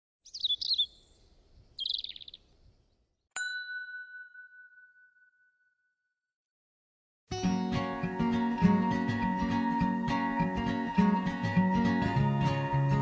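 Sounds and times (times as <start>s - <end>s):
bird chirp: 0.2s - 3.2s
bright chime ringing: 3.4s - 5.7s.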